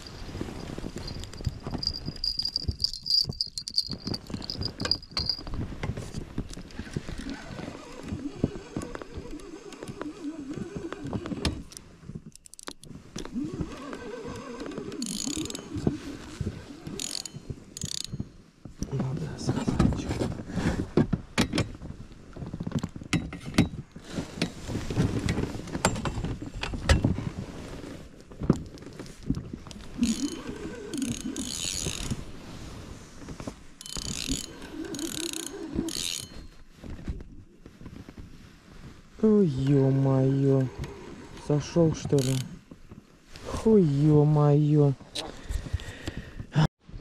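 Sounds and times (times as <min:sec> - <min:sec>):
fishing reel ratcheting: 0:01.0 - 0:05.4, 0:15.0 - 0:15.7, 0:17.0 - 0:18.2, 0:30.0 - 0:32.1, 0:33.8 - 0:36.4, 0:42.1 - 0:42.5.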